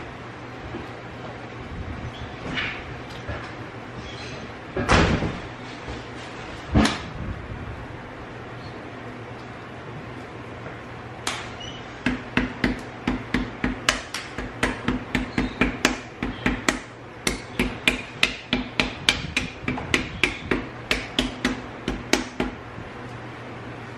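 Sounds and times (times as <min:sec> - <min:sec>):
hammer tapping on eggshell: 0:12.1 - 0:22.6.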